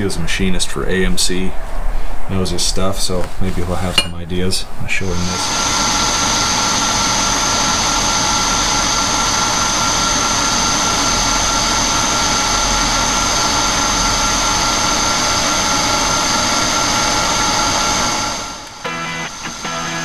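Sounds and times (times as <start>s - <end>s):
milling machine whining: 5.4s - 20.0s.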